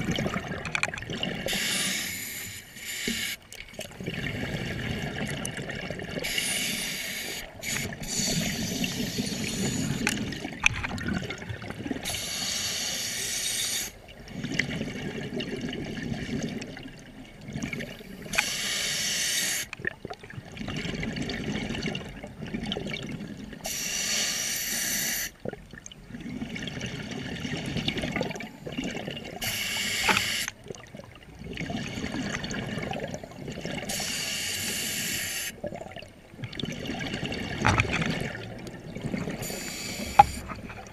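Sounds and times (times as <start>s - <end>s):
exhaled bubbles gurgling: 0.0s - 13.0s, 13.8s - 18.5s, 19.7s - 23.8s, 24.8s - 40.9s
scuba regulator inhale hiss: 1.5s - 3.4s, 6.2s - 10.1s, 12.0s - 14.0s, 18.2s - 19.7s, 23.6s - 25.4s, 29.4s - 30.5s, 33.9s - 35.6s, 39.4s - 40.6s.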